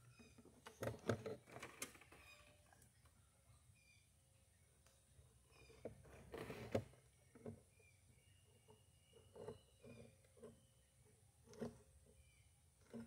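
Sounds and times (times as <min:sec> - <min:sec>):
faint taps and scrapes: 0:08.6 - 0:12.2.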